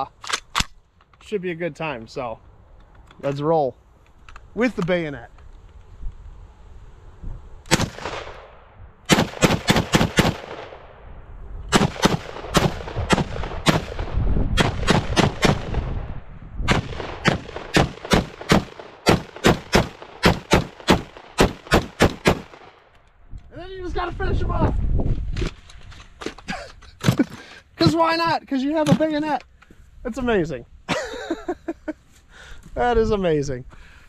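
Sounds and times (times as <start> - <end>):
rifle gunshots: 7.7 - 10.9, 11.7 - 16.1, 16.7 - 22.8.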